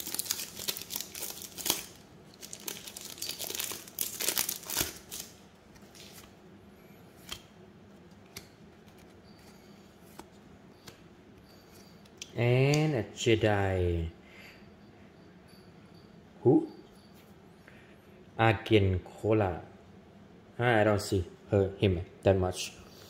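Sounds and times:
card pack wrappers crinkling: 0:00.0 - 0:06.3.

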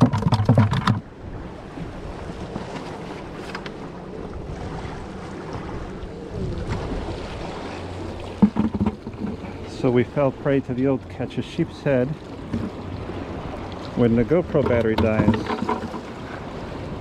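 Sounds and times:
wind buffeting microphone: 0:04.1 - 0:10.8
waves washing against rocks: 0:04.4 - 0:17.0.

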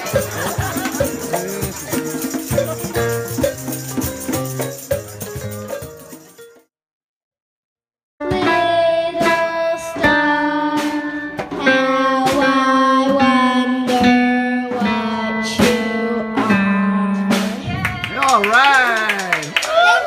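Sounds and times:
small band playing: 0:00.0 - 0:06.7, 0:08.2 - 0:19.9
girl singing into microphone: 0:08.2 - 0:17.9.

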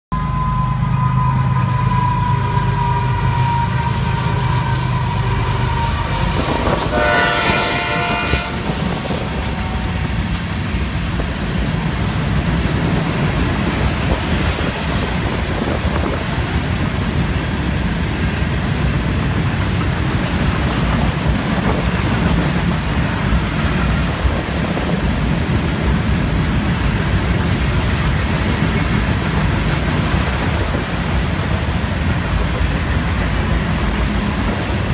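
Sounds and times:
train horn blast: 0:00.2 - 0:10.2
freight cars rumbling and clattering: 0:01.6 - 0:34.9.

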